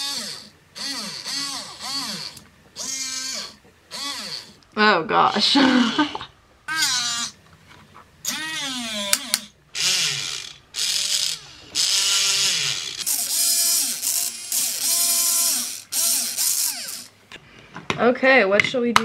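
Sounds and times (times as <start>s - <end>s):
robot arm motors whining: 0.0s - 4.6s, 6.7s - 7.4s, 8.2s - 17.2s.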